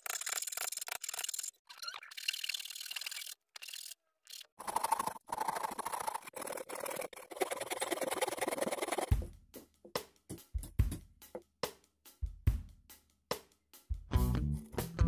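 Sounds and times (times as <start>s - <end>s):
hand file rasping on wood: 4.6s - 9.1s.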